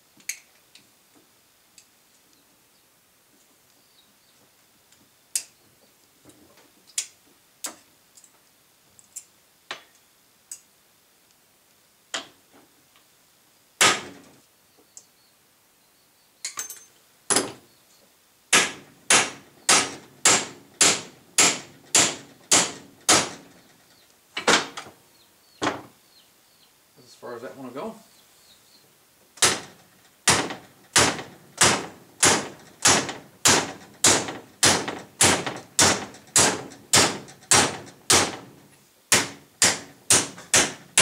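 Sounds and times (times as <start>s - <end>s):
hammer striking metal: 18.5s - 23.4s, 39.2s - 41.0s.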